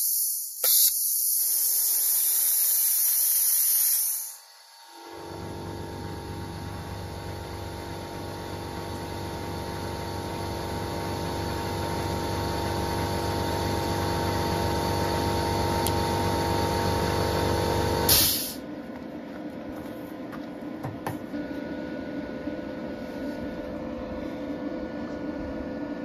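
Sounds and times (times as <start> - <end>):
sharp blast of air: 0.0 - 4.4, 18.1 - 18.6
compressed air hissing: 0.0 - 4.6, 18.1 - 18.6
steady hum: 15.4 - 26.0.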